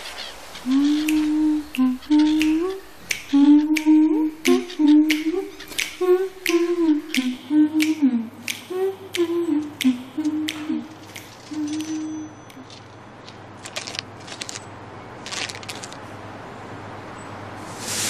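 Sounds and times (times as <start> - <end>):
person humming a tune: 0.6 - 12.8
fingers snapping: 0.9 - 14.6.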